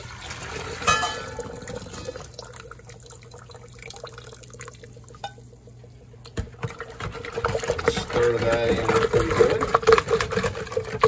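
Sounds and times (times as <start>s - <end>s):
tea pouring and splashing: 0.0s - 5.6s.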